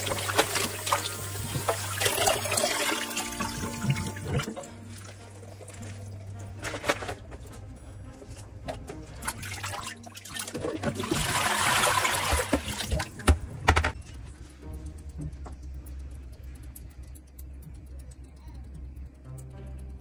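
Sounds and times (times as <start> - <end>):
water splashing in plastic basin: 0.0 - 4.6, 9.2 - 13.4
water poured into steel sink: 0.0 - 6.0, 9.2 - 13.1.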